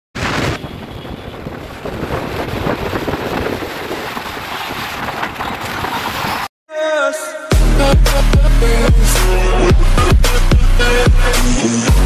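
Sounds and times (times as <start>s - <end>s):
road noise: 0.2s - 6.5s
wind on microphone: 0.2s - 6.5s.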